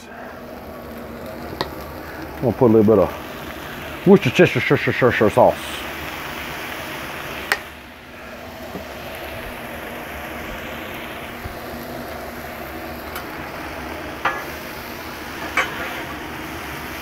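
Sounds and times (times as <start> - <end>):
vegetables sizzling on griddle: 0.0 - 17.0.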